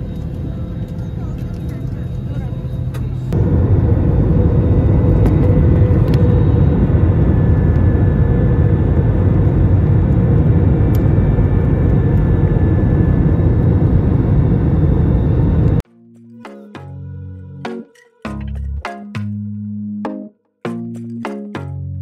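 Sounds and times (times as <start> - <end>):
vehicle engine rumbling: 0.0 - 15.8.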